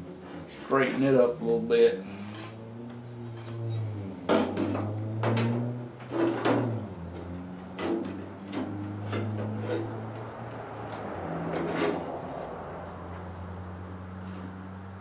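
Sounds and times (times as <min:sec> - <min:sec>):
metal panel knocks and clanks: 0:04.3 - 0:06.9, 0:07.7 - 0:10.0.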